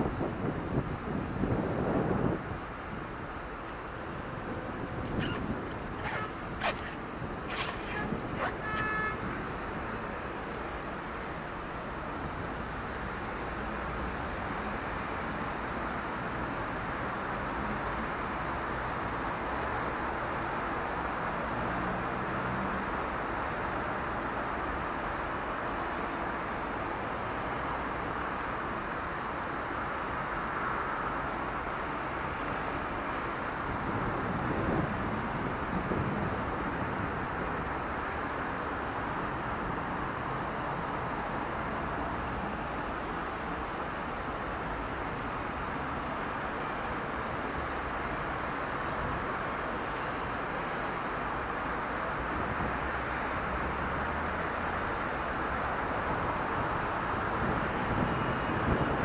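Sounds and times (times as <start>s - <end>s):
cars passing: 0.0s - 13.0s
vehicle rumble: 0.0s - 30.6s.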